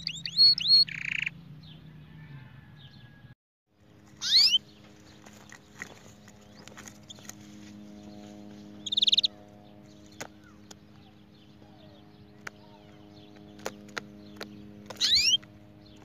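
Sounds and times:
canary trilling: 0:00.0 - 0:01.4, 0:04.0 - 0:04.8, 0:08.8 - 0:09.5, 0:11.8 - 0:15.5
steady low hum: 0:03.7 - 0:16.0.

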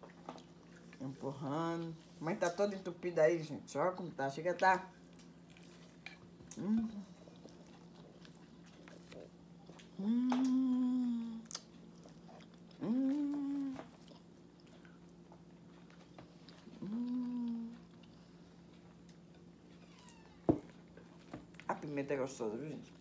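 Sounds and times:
woman humming while eating: 0:06.4 - 0:07.5, 0:09.8 - 0:11.7, 0:12.7 - 0:14.2, 0:16.7 - 0:18.0.

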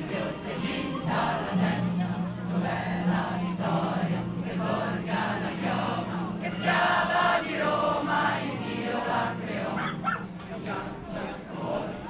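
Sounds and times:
crowd singing and chanting: 0:00.0 - 0:12.0.

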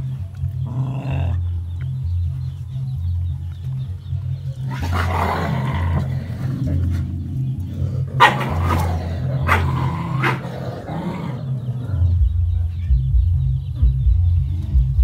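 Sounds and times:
low steady drone: 0:00.0 - 0:15.0
dog barking: 0:08.1 - 0:11.5.

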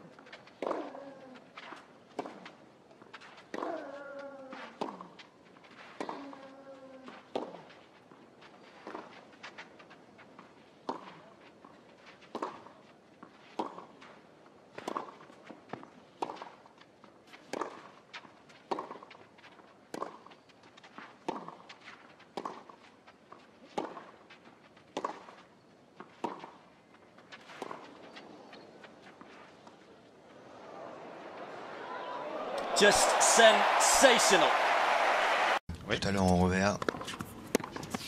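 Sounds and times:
tennis ball hit by racquets: 0:19.9 - 0:20.2, 0:23.7 - 0:24.2, 0:24.9 - 0:25.4, 0:26.1 - 0:26.6, 0:36.8 - 0:38.0.

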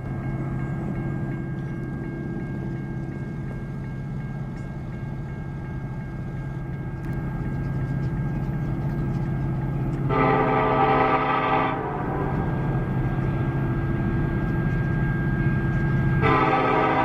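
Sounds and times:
distant freight train rumble: 0:00.0 - 0:17.0
locomotive air horn: 0:10.0 - 0:12.9, 0:16.2 - 0:17.0.

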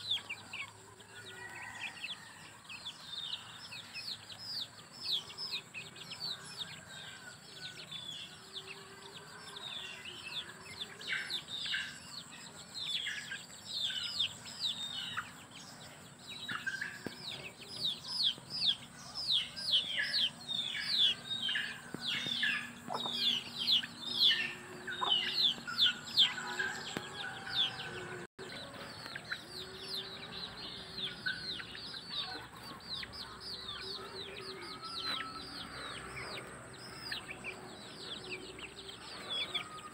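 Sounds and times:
chicks peeping: 0:00.0 - 0:39.9
hen clucking: 0:21.5 - 0:27.0.

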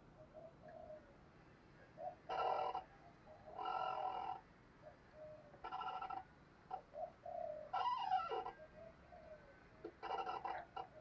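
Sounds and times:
dove cooing: 0:00.2 - 0:01.1, 0:06.7 - 0:11.0.

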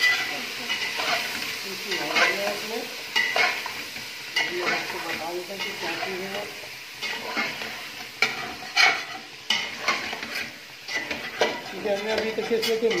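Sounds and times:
chicken sizzling in oil: 0:00.0 - 0:13.0
spoon scraping metal pot: 0:07.0 - 0:13.0.

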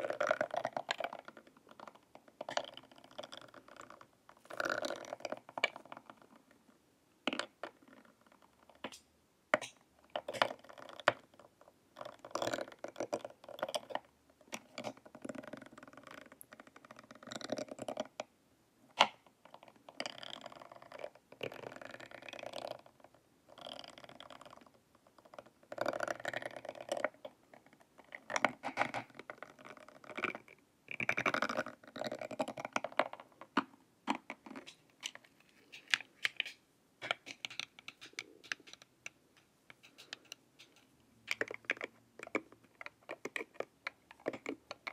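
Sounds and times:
metal rods scratching plastic mask: 0:34.1 - 0:44.9
sharp clicks: 0:34.6 - 0:41.9.

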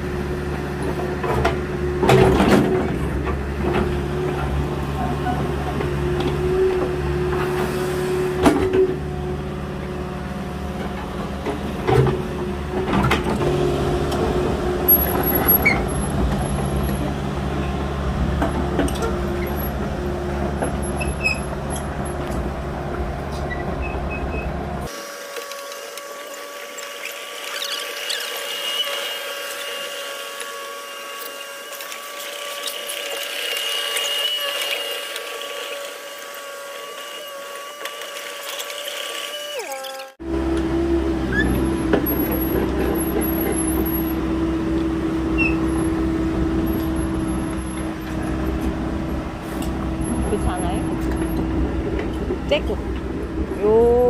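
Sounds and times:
excavator engine rumbling: 0:00.0 - 0:25.0, 0:39.6 - 0:54.0.

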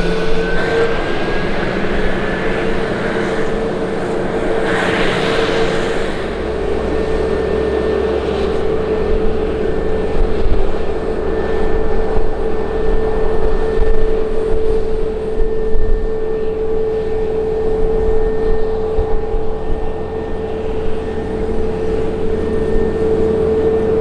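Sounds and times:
jet engines with whining fan: 0:00.0 - 0:24.0.

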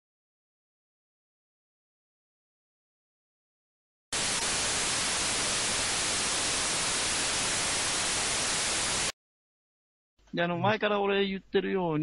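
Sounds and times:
white-noise static hiss: 0:04.2 - 0:09.1.

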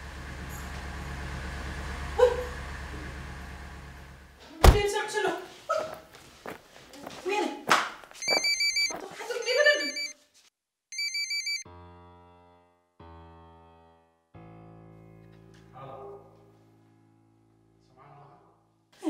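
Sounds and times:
woman's voice: 0:04.5 - 0:05.9, 0:07.0 - 0:07.7, 0:08.9 - 0:10.1
warbling telephone ringtone: 0:08.2 - 0:10.2, 0:10.9 - 0:11.6.

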